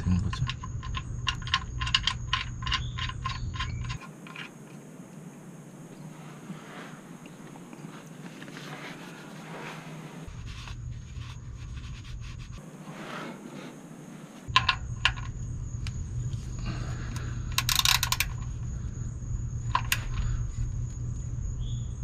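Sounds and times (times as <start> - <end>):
hand tools clicking and clinking: 0.3 - 4.8, 17.5 - 18.5.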